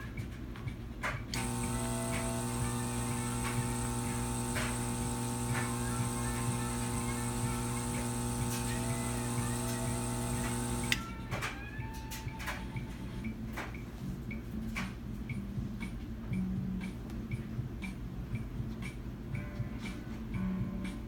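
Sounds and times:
electric air pump humming: 0:01.3 - 0:11.2.

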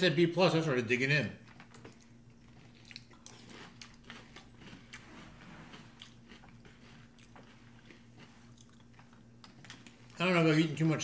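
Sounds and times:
cereal being chewed: 0:01.4 - 0:10.2.

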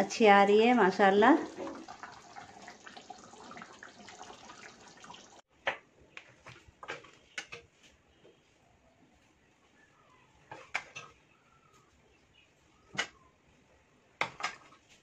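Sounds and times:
gravy bubbling in a pan: 0:01.4 - 0:05.5.

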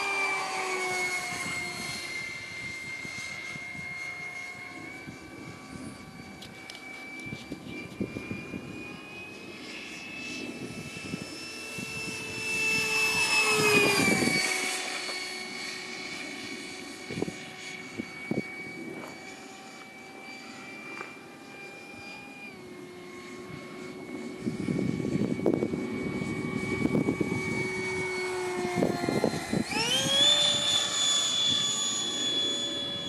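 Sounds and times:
model jet fan whine: 0:00.0 - 0:33.0.

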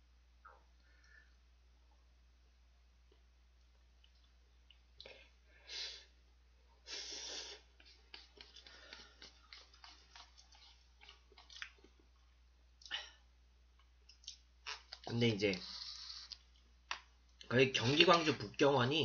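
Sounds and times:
noisy breaths: 0:06.8 - 0:10.8
chewing clicks: 0:08.1 - 0:12.0.

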